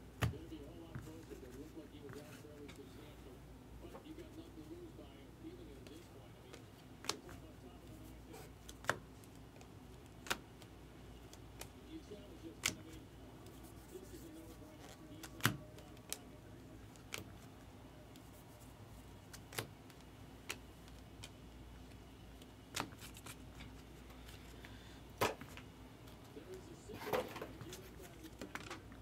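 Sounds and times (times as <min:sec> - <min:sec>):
low steady hum: 0:00.0 - 0:29.0
cards flicked clicking: 0:19.3 - 0:21.4.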